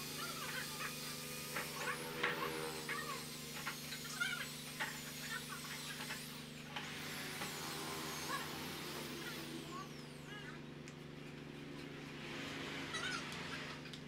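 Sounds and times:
electric drill motor hum: 0.0 - 10.9.

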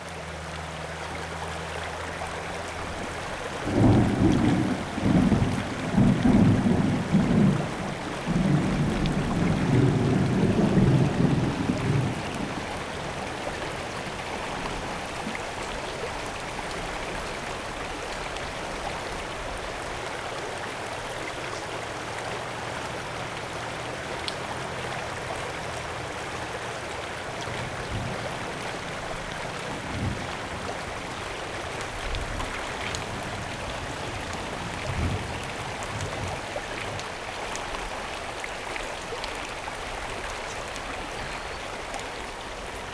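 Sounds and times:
river water running: 0.0 - 42.9
thunder rumbling: 3.6 - 12.7.

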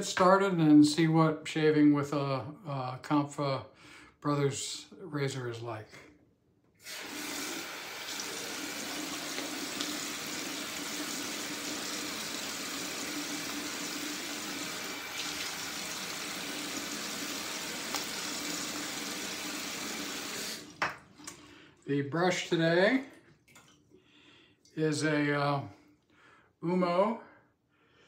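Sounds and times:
tap running into sink: 17.8 - 19.1, 20.1 - 21.4.

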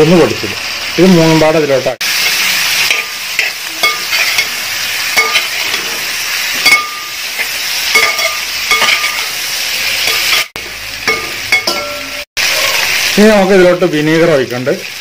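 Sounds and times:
hot oil sizzling: 0.0 - 15.0
metal spatula scraping pot: 2.2 - 4.6, 5.2 - 12.2.

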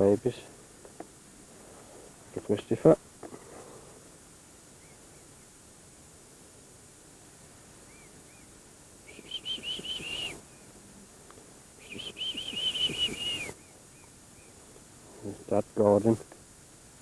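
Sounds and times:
cygnets peeping: 7.8 - 10.7, 11.8 - 14.6.

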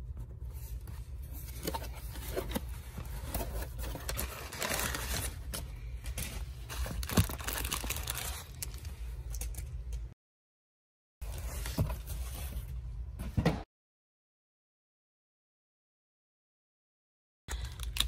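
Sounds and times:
packing paper crinkling: 3.3 - 5.5, 6.2 - 9.0.

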